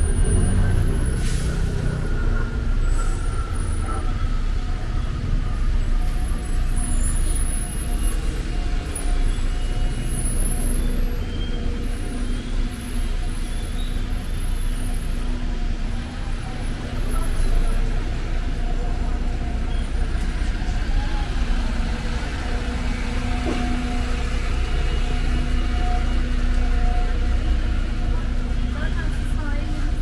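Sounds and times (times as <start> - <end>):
bus and car engines running: 0.0 - 30.0.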